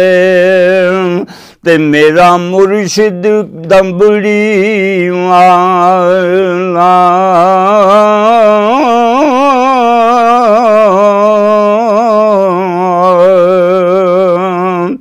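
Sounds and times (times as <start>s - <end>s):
man singing a long held note: 0.0s - 15.0s.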